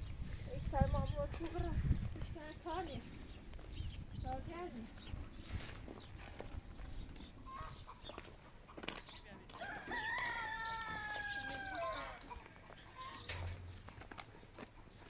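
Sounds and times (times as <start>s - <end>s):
rooster crowing: 9.5s - 12.3s.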